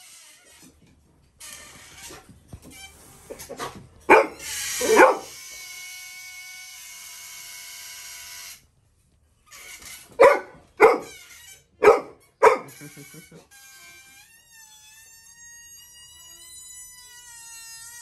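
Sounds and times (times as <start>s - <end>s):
air squealing out of balloon: 2.0s - 6.4s
puppy barking: 3.3s - 5.4s, 10.2s - 11.2s, 11.8s - 13.0s.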